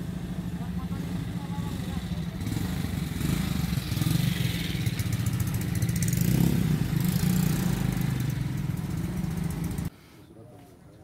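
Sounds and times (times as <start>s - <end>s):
scooters riding past: 0.0s - 9.9s.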